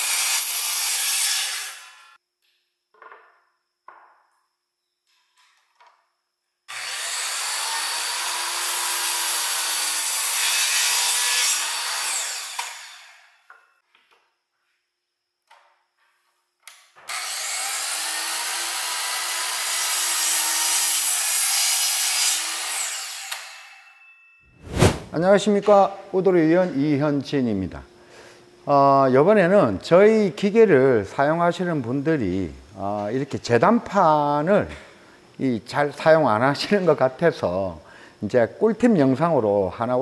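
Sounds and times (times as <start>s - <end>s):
miter saw cutting wood: 6.7s - 13.4s, 17.1s - 23.8s.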